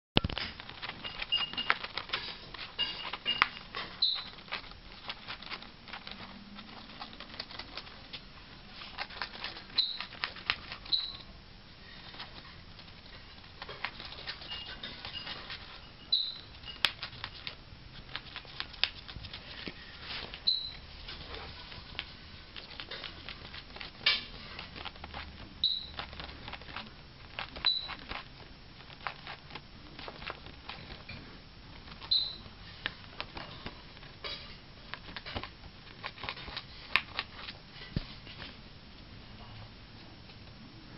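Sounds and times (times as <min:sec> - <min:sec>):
bird squeak: 0:03.0 - 0:04.4, 0:09.8 - 0:10.1, 0:10.9 - 0:11.2, 0:14.4 - 0:16.9, 0:20.4 - 0:20.8, 0:25.6 - 0:26.0, 0:32.1 - 0:32.4
bird beak crunching paper card: 0:08.9 - 0:11.2.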